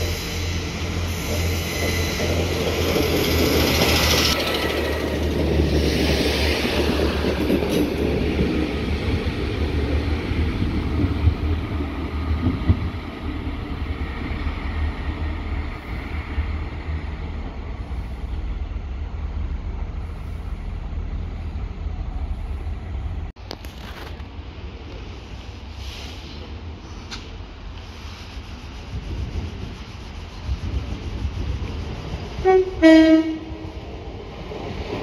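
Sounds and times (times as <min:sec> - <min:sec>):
train rumbling past: 0:00.0 - 0:35.0.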